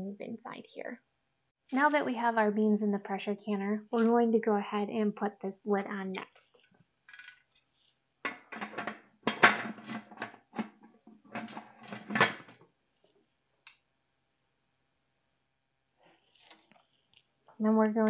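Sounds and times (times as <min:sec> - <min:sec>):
metal lid scraping and clanking: 0:08.4 - 0:12.5.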